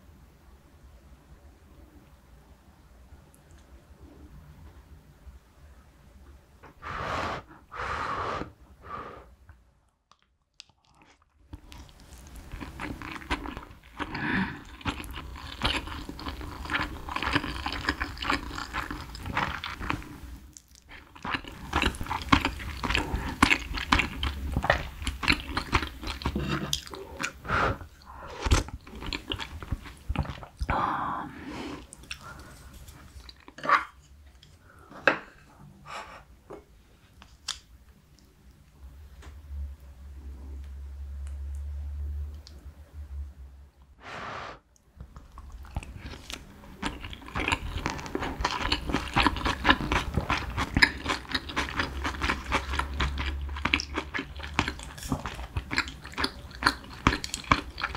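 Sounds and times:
close-up chewing: 0:10.1 - 0:27.4, 0:28.0 - 0:30.8, 0:45.1 - 0:57.9.

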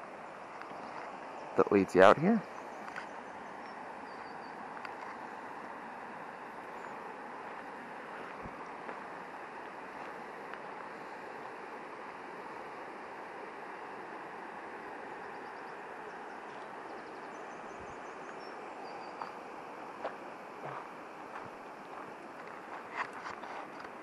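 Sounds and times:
river water flowing: 0:00.0 - 0:24.0
small bird chirping: 0:15.2 - 0:19.4.

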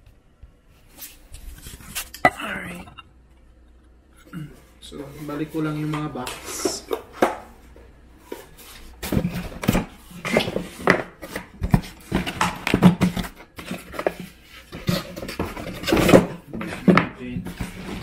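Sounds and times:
cardboard and plastic handling: 0:05.1 - 0:18.0.

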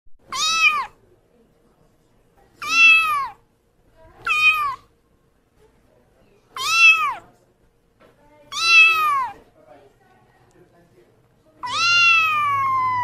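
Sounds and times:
kitten meowing: 0:00.3 - 0:01.0, 0:02.6 - 0:03.4, 0:04.2 - 0:04.9, 0:06.6 - 0:07.2, 0:08.5 - 0:09.4, 0:11.6 - 0:13.0.

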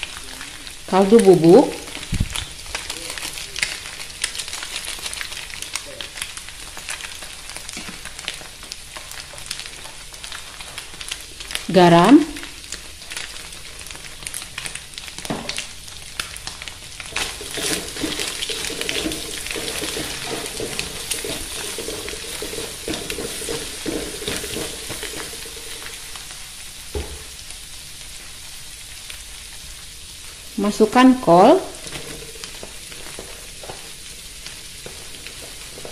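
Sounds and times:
egg sizzling in oil: 0:00.0 - 0:35.9
spatula scraping pan: 0:17.1 - 0:26.2.

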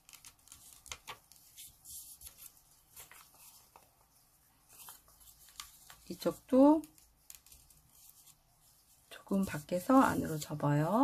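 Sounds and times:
paper rustling and crinkling: 0:00.0 - 0:11.0.

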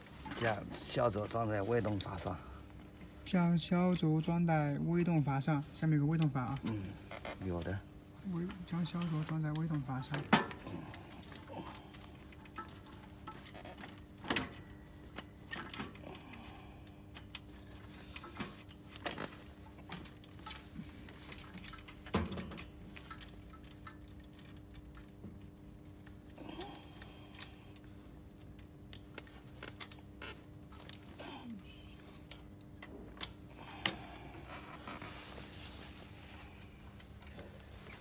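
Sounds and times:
faint steady hum: 0:00.0 - 0:38.0
metal parts clinking and knocking: 0:08.4 - 0:31.4.

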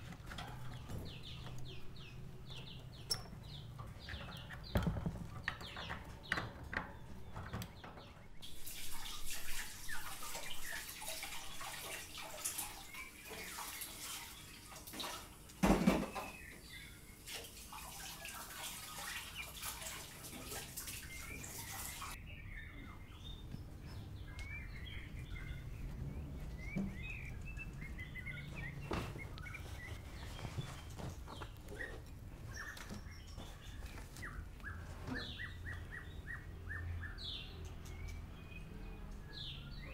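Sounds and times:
small birds chirping: 0:00.0 - 0:39.9
dishes being washed: 0:03.5 - 0:22.2.

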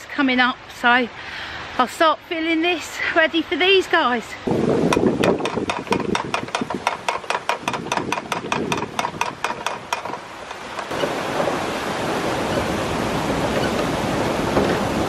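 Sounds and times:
ratchet clicking: 0:04.9 - 0:10.9
water rushing: 0:06.2 - 0:15.0.

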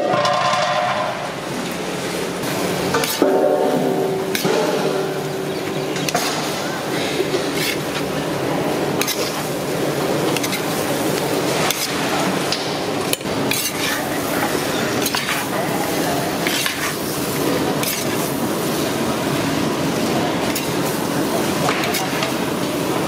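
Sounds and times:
metal spatula scraping iron pan: 0:13.5 - 0:14.1, 0:16.4 - 0:17.0.

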